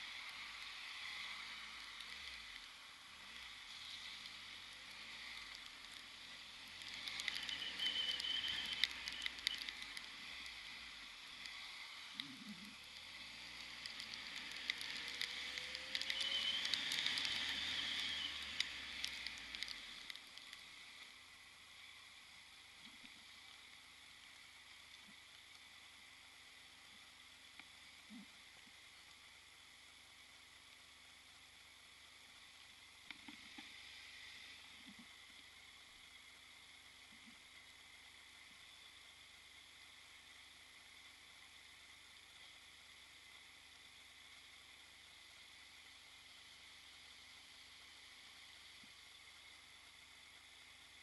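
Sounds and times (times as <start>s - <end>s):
muffled wind and road noise: 0.0s - 51.0s
raindrops ticking on camera: 0.1s - 22.0s.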